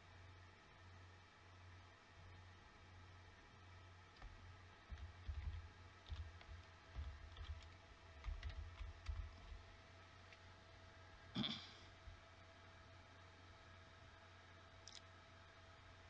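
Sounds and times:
computer keyboard and mouse clicking: 0:04.2 - 0:09.6.

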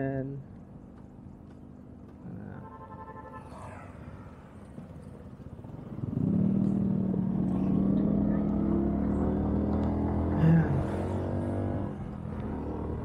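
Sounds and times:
motorcycle engine pulling away: 0:04.6 - 0:13.0.

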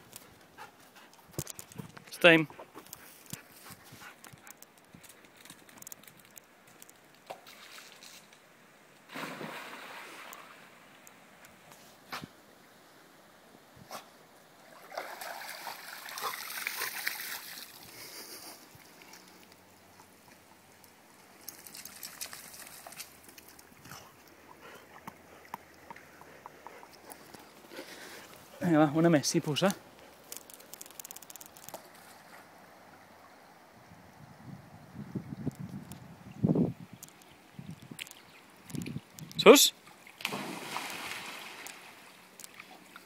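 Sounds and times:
dog paws pattering on concrete: 0:00.1 - 0:07.4
dog splashing into pool: 0:09.1 - 0:10.3, 0:14.7 - 0:17.8, 0:40.2 - 0:42.0
faint ticks: 0:37.0 - 0:39.4.

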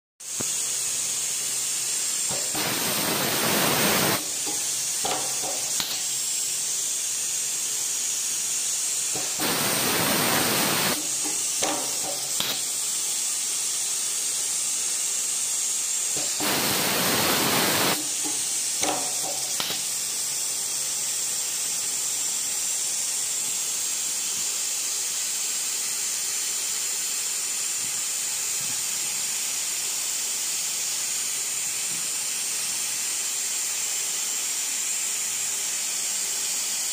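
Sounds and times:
machine running with high hiss: 0:00.2 - 0:36.9
loud rush of air: 0:02.4 - 0:04.4, 0:09.2 - 0:11.2, 0:16.3 - 0:18.1.

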